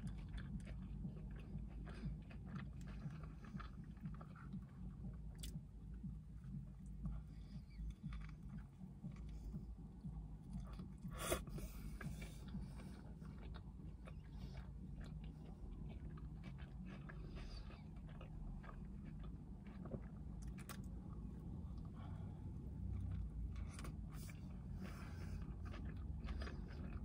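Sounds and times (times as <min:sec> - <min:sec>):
person chewing food: 0:00.0 - 0:27.0.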